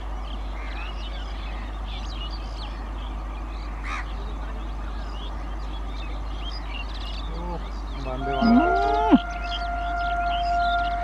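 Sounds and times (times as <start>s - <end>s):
low background rumble: 0.0s - 11.0s
small birds chirping: 0.0s - 11.0s
loud short bird call: 8.0s - 11.0s.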